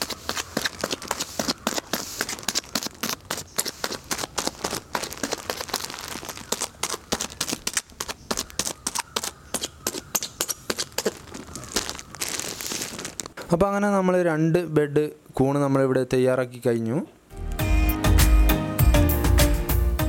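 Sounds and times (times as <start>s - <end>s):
plastic bag crinkling and popping: 0.0s - 13.5s.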